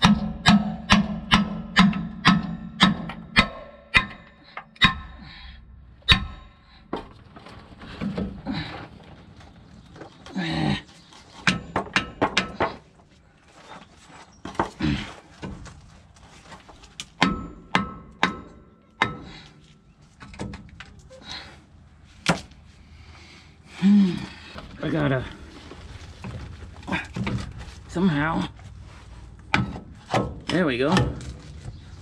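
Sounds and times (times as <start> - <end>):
hammer striking steel: 0.0 - 5.3, 6.0 - 6.7, 17.2 - 19.4.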